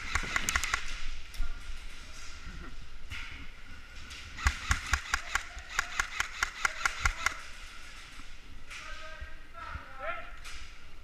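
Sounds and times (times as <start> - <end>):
airsoft rifle shots: 0.0 - 1.1, 4.4 - 8.0.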